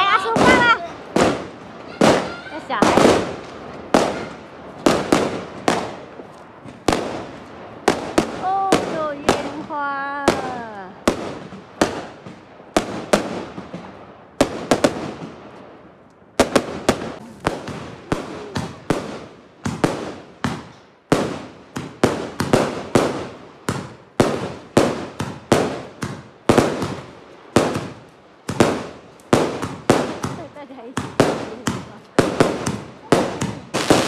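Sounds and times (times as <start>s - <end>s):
fireworks bursting with sharp bangs: 0.0s - 34.0s.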